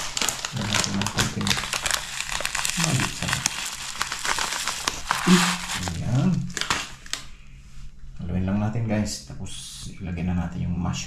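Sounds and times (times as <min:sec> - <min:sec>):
packaging crinkling and rustling: 0:00.0 - 0:07.4.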